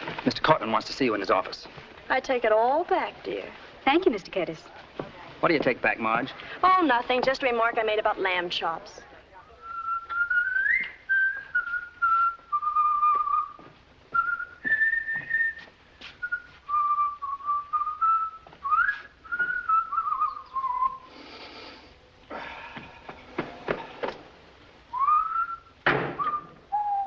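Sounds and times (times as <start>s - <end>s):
man whistling a tune: 9.6s - 21.1s, 24.9s - 27.0s.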